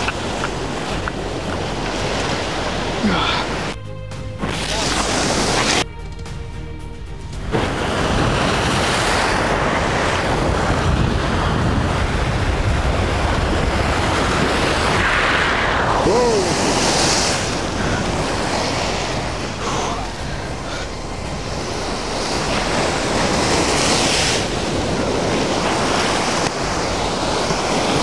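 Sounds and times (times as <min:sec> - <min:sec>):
sea waves breaking over rocks: 0:00.0 - 0:03.8, 0:04.4 - 0:05.9, 0:07.4 - 0:28.0
wind buffeting microphone: 0:07.4 - 0:28.0.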